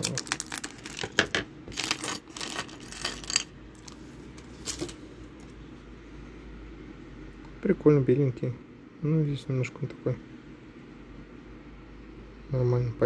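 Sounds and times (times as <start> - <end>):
plastic pieces clattering on table: 0.0 - 4.0, 4.6 - 5.0.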